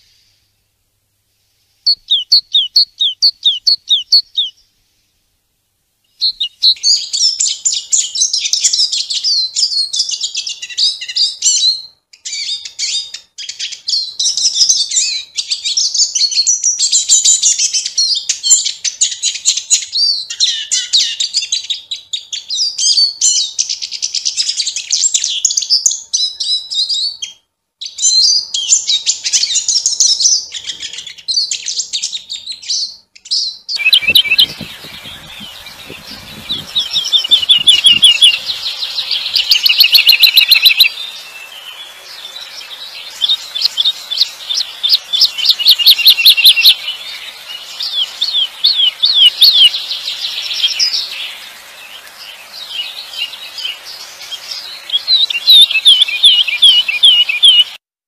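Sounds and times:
steady hiss: 0:00.0 - 0:02.1, 0:02.9 - 0:11.6, 0:33.1 - 0:57.8
songbird twittering: 0:01.9 - 0:04.7, 0:06.1 - 0:57.8.

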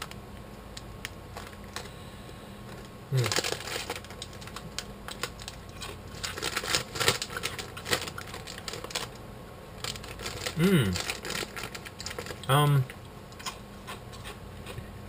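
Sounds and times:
crunching crispy crackers: 0:00.0 - 0:01.9, 0:02.7 - 0:09.2, 0:09.8 - 0:14.8
foil snack bag crinkling: 0:02.7 - 0:09.2, 0:09.8 - 0:12.5.

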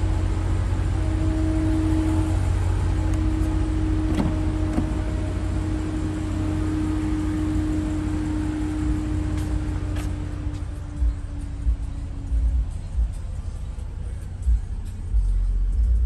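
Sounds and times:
low hum with mid-pitched tone: 0:00.0 - 0:16.0.

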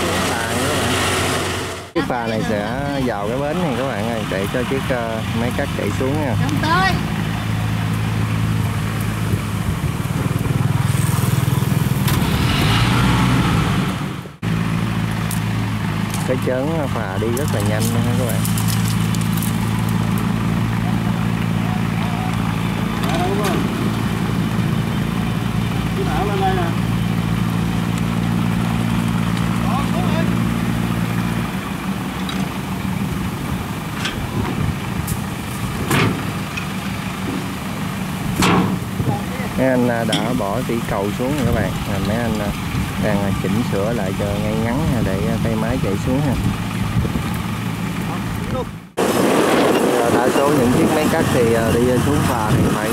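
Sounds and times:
engine idling: 0:00.0 - 0:12.2, 0:14.0 - 0:49.0
boat engine chugging: 0:20.3 - 0:35.0
steel ramps clanking: 0:33.9 - 0:34.8, 0:35.8 - 0:37.5, 0:38.3 - 0:38.9, 0:40.0 - 0:40.4.

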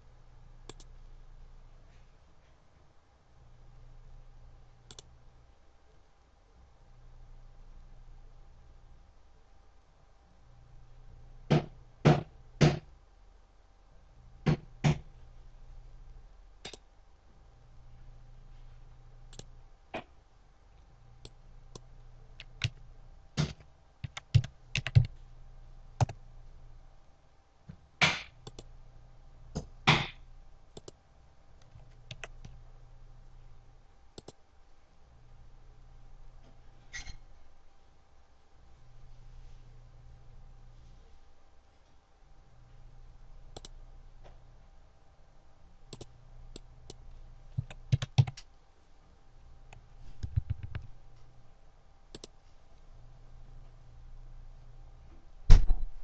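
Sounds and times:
faint low hum: 0:00.0 - 0:56.0
computer mouse clicks: 0:00.6 - 0:00.9, 0:04.9 - 0:05.1, 0:16.6 - 0:16.9, 0:19.3 - 0:19.5, 0:28.4 - 0:28.7, 0:30.7 - 0:31.0, 0:34.2 - 0:34.4, 0:43.5 - 0:43.8, 0:45.9 - 0:48.5, 0:49.7 - 0:51.0, 0:52.1 - 0:52.4
keyboard keys clicking: 0:23.4 - 0:25.2, 0:31.6 - 0:32.6, 0:45.9 - 0:48.5, 0:50.2 - 0:50.9.

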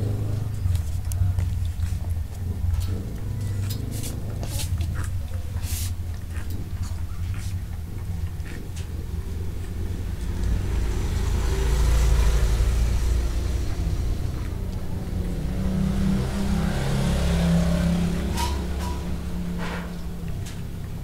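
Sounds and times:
vehicle engine rumbling: 0:00.0 - 0:21.0.

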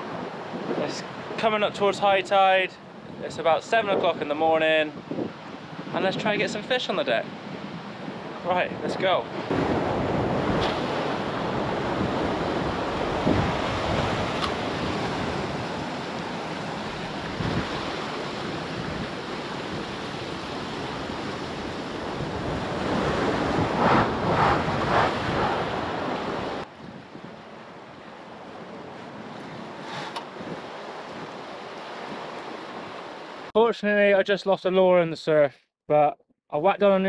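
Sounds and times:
wind buffeting microphone: 0:04.9 - 0:06.5, 0:09.4 - 0:33.0
ocean surf breaking: 0:07.0 - 0:33.5.

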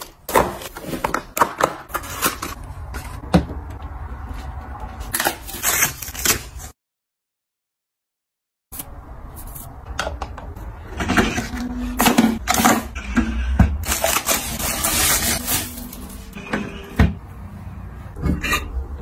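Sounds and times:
plastic rustling: 0:13.8 - 0:16.4.

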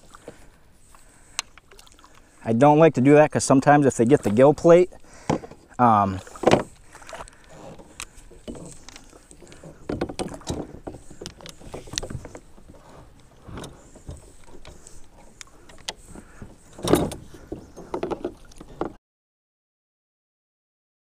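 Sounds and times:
fish thrashing and splashing: 0:00.0 - 0:02.4, 0:04.2 - 0:18.8
paddle bumping kayak hull: 0:04.0 - 0:19.0.

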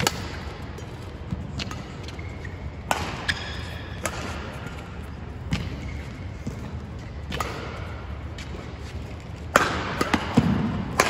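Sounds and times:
rackets hitting shuttlecock: 0:00.0 - 0:11.0.

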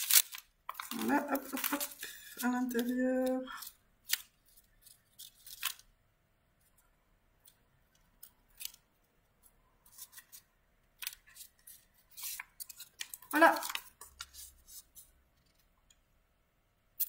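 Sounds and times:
paper rustling and crackling: 0:00.0 - 0:05.9, 0:09.8 - 0:15.7.

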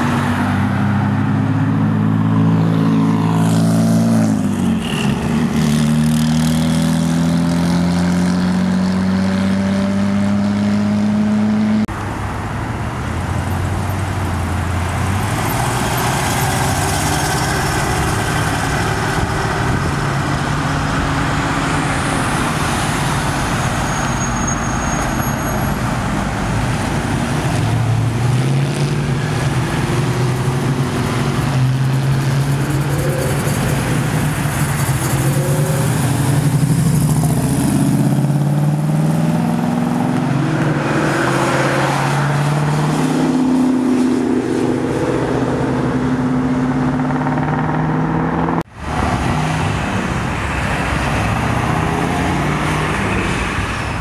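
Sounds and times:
car accelerating: 0:26.6 - 0:53.4.

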